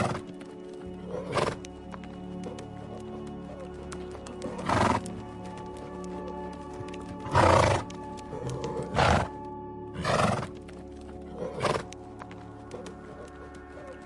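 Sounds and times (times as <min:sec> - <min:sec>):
background music sustained tones: 0:00.0 - 0:14.0
horse calling: 0:01.0 - 0:01.7, 0:02.3 - 0:05.2, 0:07.2 - 0:09.3, 0:09.9 - 0:10.6, 0:11.2 - 0:11.9, 0:12.6 - 0:14.0.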